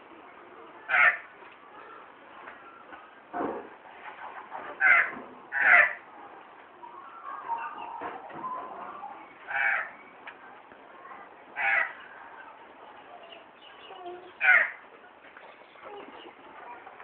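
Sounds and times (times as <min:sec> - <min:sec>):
magpies squawking: 0:00.9 - 0:01.2, 0:04.8 - 0:06.0, 0:08.8 - 0:10.0, 0:11.6 - 0:12.0, 0:14.4 - 0:14.8
magpies calling: 0:00.9 - 0:01.3, 0:04.8 - 0:06.0, 0:08.6 - 0:10.2, 0:11.6 - 0:12.1, 0:13.2 - 0:14.8.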